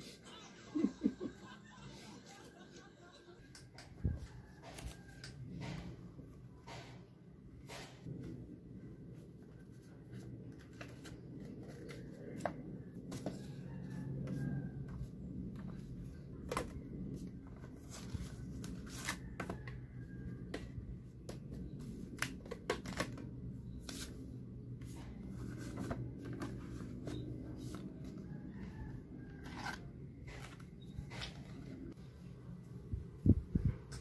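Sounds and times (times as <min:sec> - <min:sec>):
paper cards rustling: 0:09.4 - 0:13.3, 0:29.4 - 0:32.0.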